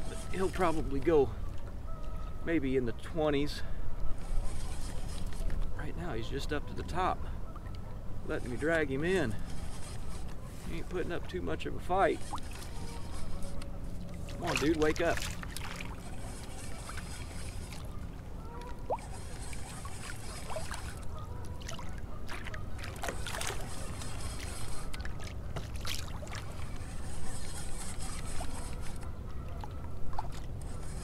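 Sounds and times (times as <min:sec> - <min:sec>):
water lapping against kayak hull: 0:12.2 - 0:30.6.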